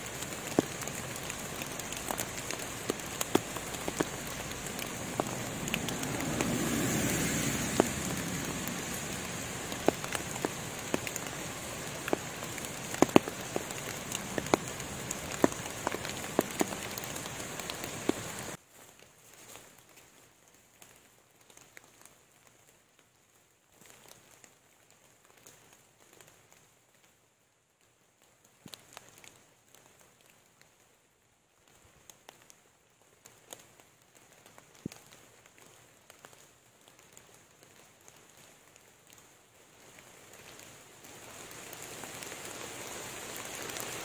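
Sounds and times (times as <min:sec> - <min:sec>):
sharp drips tapping: 0:00.0 - 0:18.5
steady rain hiss: 0:00.0 - 0:44.0.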